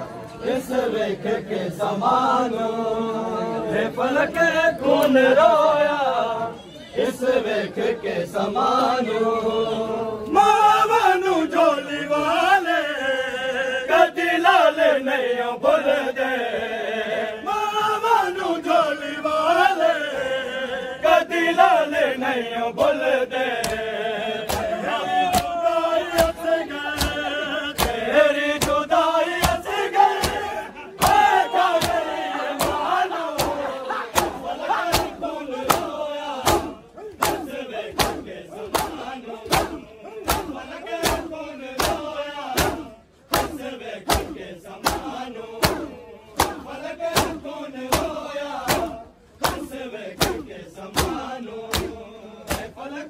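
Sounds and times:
men chanting in unison: 0:00.4 - 0:53.0
rhythmic chest-beating slaps: 0:04.2 - 0:05.6, 0:18.4 - 0:53.0.

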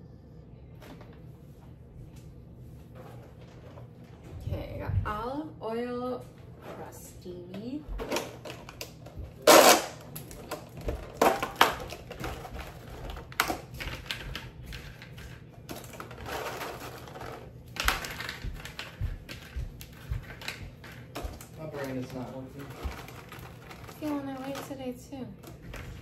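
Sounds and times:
cracker package crinkling: 0:08.4 - 0:24.8.

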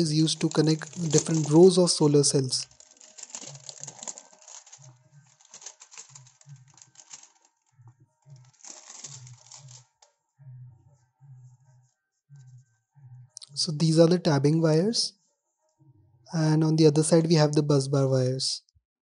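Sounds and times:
plastic wrap crinkling: 0:00.0 - 0:07.7, 0:08.3 - 0:10.0.

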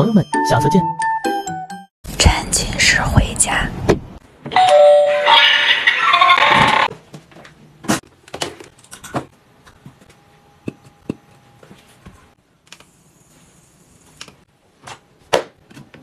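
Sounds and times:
electronic doorbell sound effect: 0:04.6 - 0:05.2.

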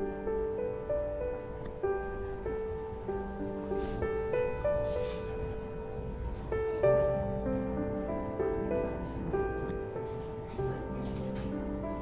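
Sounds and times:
slow keyboard melody: 0:00.0 - 0:12.0.

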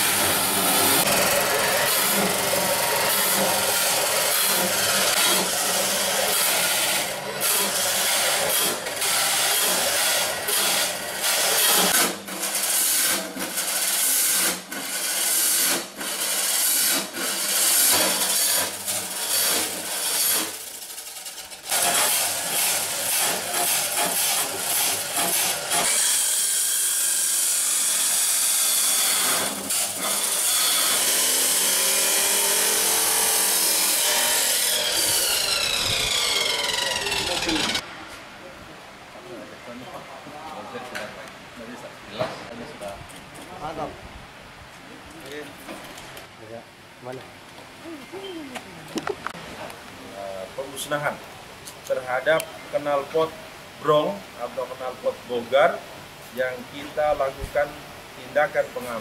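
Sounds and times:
angle grinders cutting metal: 0:00.0 - 0:37.8.

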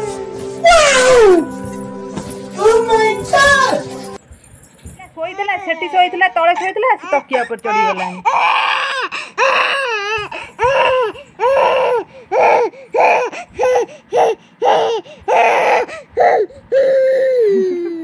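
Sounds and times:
infant crying: 0:00.6 - 0:01.5, 0:05.2 - 0:18.0.

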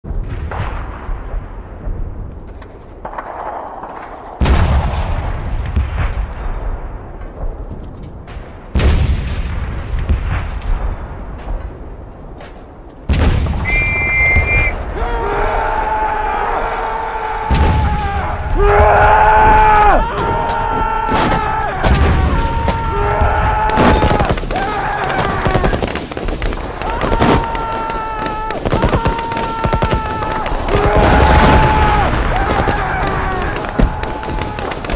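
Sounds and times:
low battlefield rumble: 0:00.0 - 0:34.9
artillery blast: 0:00.1 - 0:02.4, 0:03.0 - 0:11.9, 0:13.0 - 0:15.9, 0:17.4 - 0:34.9
gunshots: 0:17.4 - 0:34.9.

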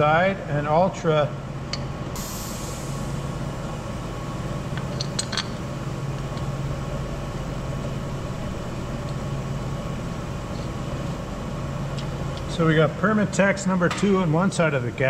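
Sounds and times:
low mechanical machinery hum: 0:00.0 - 0:15.0.

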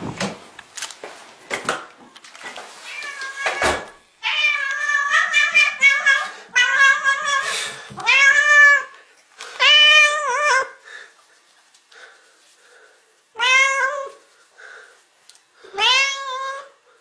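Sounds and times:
cat meowing loudly: 0:13.4 - 0:14.2, 0:15.7 - 0:16.7.

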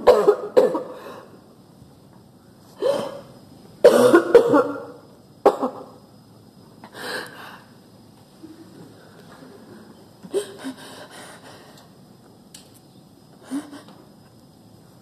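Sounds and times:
person clearing throat: 0:00.0 - 0:01.0, 0:02.8 - 0:06.0
person coughing: 0:00.0 - 0:01.0, 0:02.8 - 0:03.2, 0:03.8 - 0:06.0.

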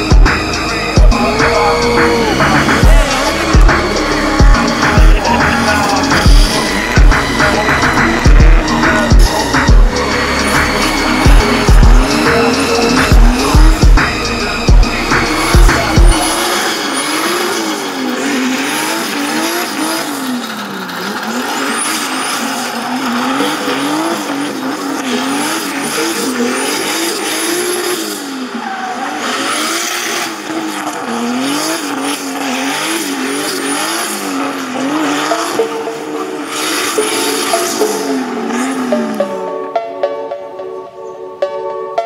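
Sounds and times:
tyres squealing and skidding: 0:00.0 - 0:39.7
car engine revving: 0:00.0 - 0:39.8.

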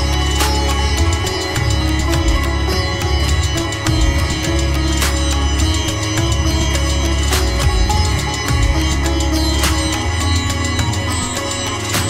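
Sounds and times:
deep bass: 0:00.0 - 0:12.0
percussion beat: 0:00.0 - 0:12.0
sitar playing: 0:00.0 - 0:12.0.

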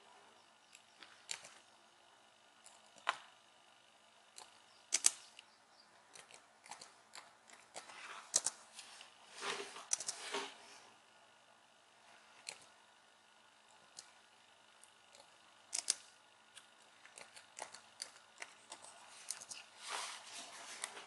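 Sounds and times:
laptop keys clicking: 0:04.3 - 0:05.5, 0:06.1 - 0:08.6, 0:09.8 - 0:10.2, 0:15.1 - 0:16.1.

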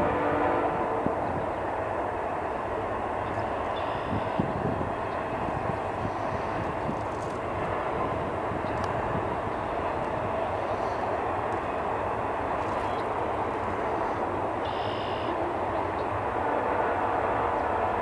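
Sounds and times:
train wheels rumbling on rails: 0:00.0 - 0:18.0
faint clicks: 0:08.6 - 0:09.0.

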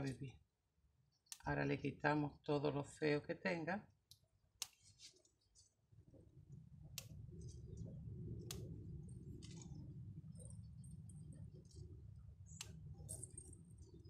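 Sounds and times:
low steady rumble: 0:06.0 - 0:14.0.

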